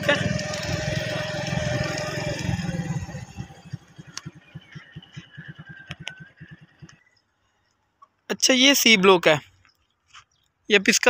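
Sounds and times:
motorcycle engine at low revs: 0:00.0 - 0:08.2
sharp clicks: 0:03.9 - 0:05.2, 0:05.8 - 0:07.1.

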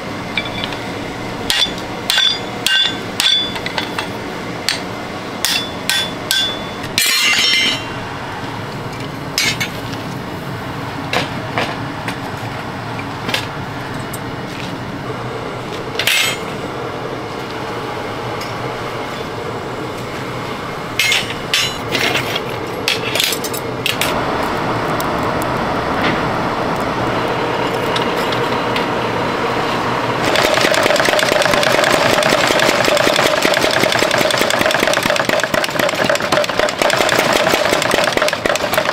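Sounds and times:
machine running noise: 0:00.0 - 0:38.9
hammer blows on anvil: 0:01.5 - 0:04.1, 0:05.4 - 0:08.0
power hammer pounding: 0:30.2 - 0:38.9.

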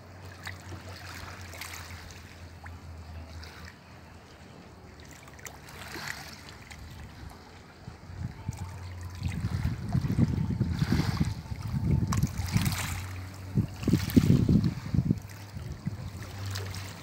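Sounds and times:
wavelets lapping on pebbles: 0:00.0 - 0:02.7, 0:05.0 - 0:07.4, 0:09.0 - 0:17.0
low steady hum: 0:00.0 - 0:17.0.

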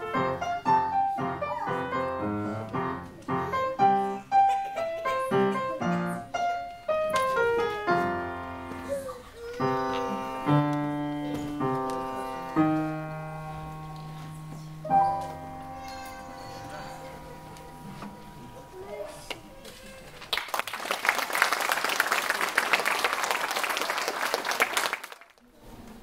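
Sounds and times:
upright piano playing: 0:00.0 - 0:20.0.

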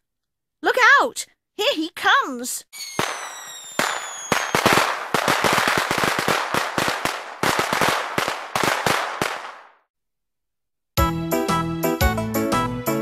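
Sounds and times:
firecracker crackling: 0:02.8 - 0:09.8
firecrackers banging: 0:02.8 - 0:09.8.

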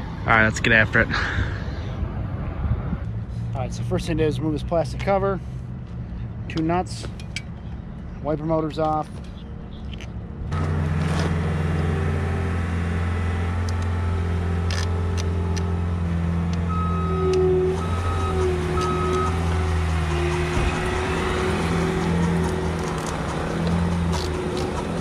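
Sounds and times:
vehicle engine running: 0:10.5 - 0:25.0
reversing alarm beeps: 0:16.6 - 0:19.6.

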